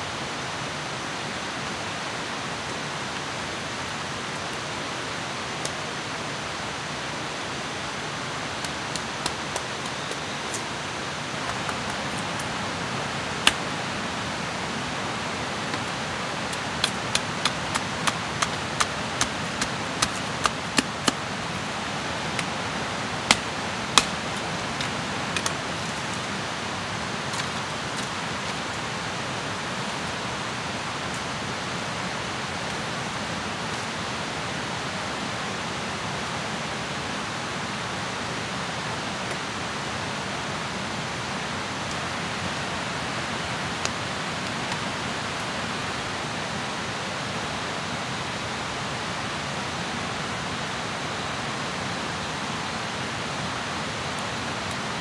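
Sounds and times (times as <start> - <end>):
blade chopping into log: 23.3 - 24.2.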